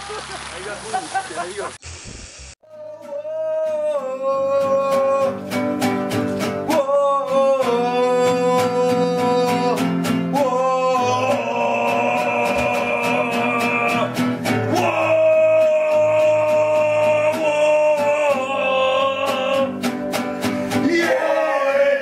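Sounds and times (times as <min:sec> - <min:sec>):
static hiss: 0:00.0 - 0:02.6
man singing long notes: 0:02.6 - 0:05.6, 0:06.6 - 0:19.8, 0:20.8 - 0:22.0
acoustic guitar strumming: 0:02.9 - 0:22.0.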